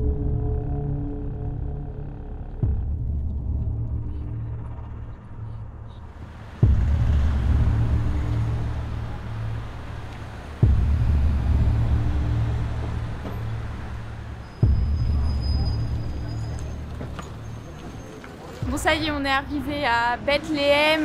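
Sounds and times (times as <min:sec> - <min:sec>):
deep bass boom: 0:00.0 - 0:17.6
faint street traffic noise: 0:05.0 - 0:21.0.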